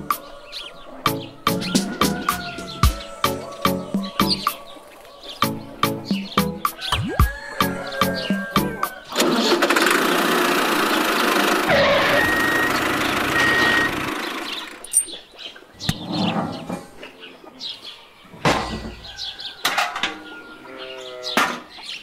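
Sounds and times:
birds chirping: 0.0 - 22.0
tractor motor running: 9.1 - 14.9.

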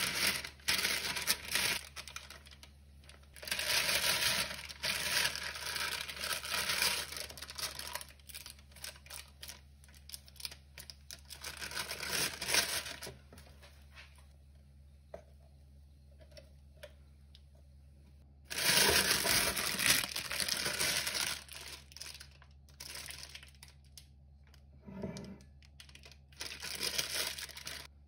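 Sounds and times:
plastic piping bag crinkling: 0.0 - 13.2, 18.5 - 24.3, 25.5 - 27.9.

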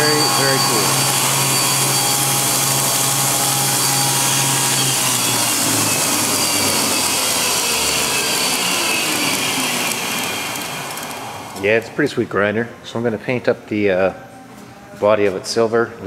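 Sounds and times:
belt grinder hissing: 0.0 - 12.0.

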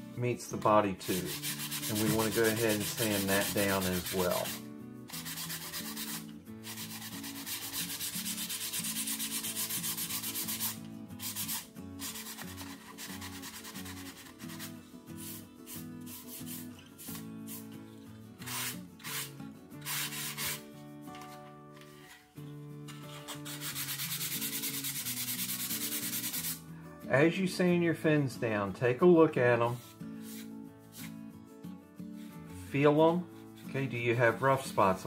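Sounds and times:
sandpaper rubbing by hand: 1.0 - 17.8, 18.4 - 20.7, 22.9 - 26.6, 29.7 - 31.2.

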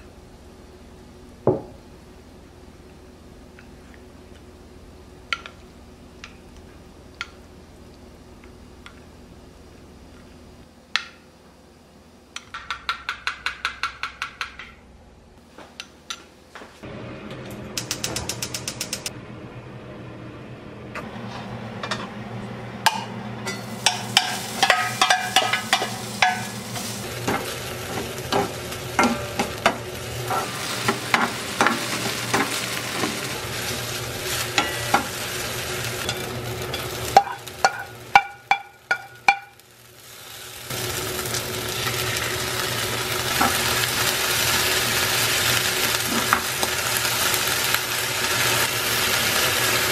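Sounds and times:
spatula tapping and scraping pan: 12.4 - 14.8, 22.9 - 26.6, 36.1 - 39.6
oil sizzling in frying pan: 22.8 - 49.9.

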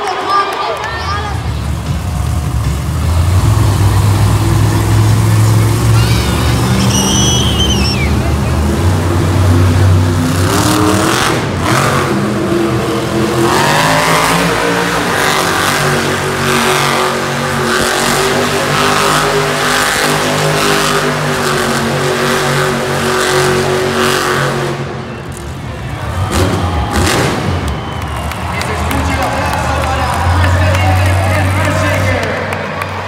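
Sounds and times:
truck engine revving: 1.3 - 33.0.

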